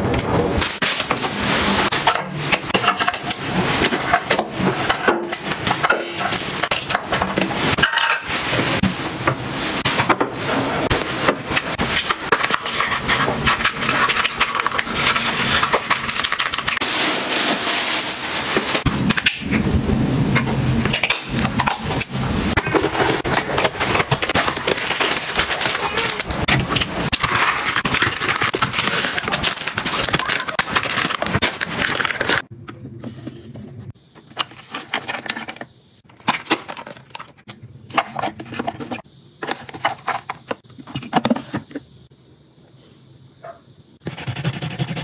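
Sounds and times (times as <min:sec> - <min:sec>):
plastic packaging crinkling: 0:10.9 - 0:18.9, 0:21.3 - 0:32.5.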